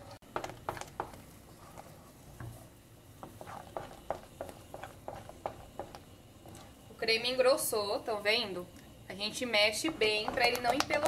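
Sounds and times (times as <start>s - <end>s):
utensil tapping and scraping pot: 0.0s - 6.8s, 9.6s - 11.0s.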